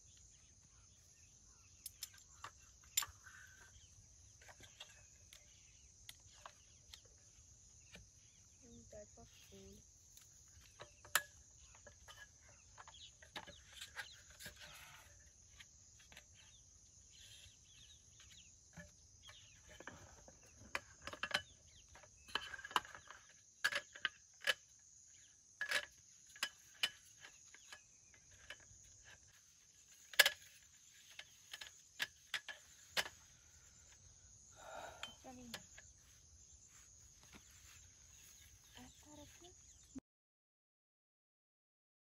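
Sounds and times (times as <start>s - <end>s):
insects droning: 0.0s - 40.0s.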